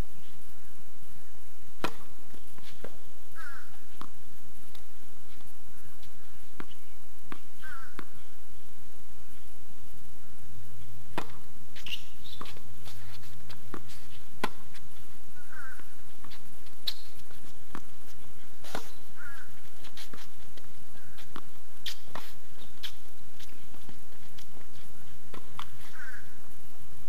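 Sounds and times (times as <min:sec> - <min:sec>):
tennis ball struck by racket: 0:01.8 - 0:02.2, 0:11.1 - 0:14.8
tennis ball bouncing on court: 0:01.8 - 0:04.9, 0:06.6 - 0:08.1, 0:11.1 - 0:14.8, 0:15.4 - 0:17.9, 0:18.6 - 0:26.3.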